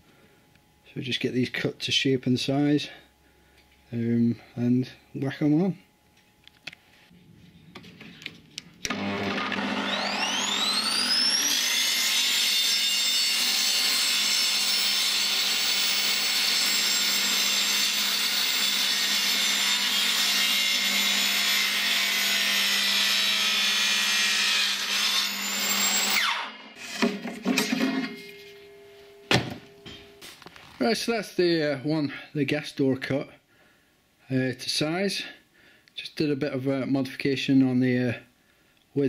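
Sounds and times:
table saw whining: 8.8 - 30.2.

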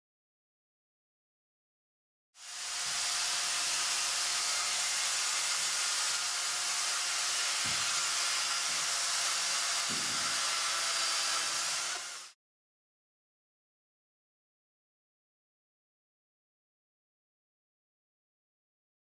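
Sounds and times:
electric chainsaw cutting foam: 2.4 - 12.4.

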